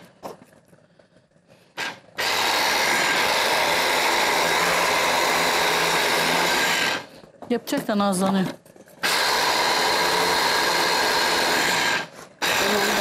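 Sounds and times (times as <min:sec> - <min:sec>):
electric food chopper running: 0:01.8 - 0:07.3, 0:09.0 - 0:13.0.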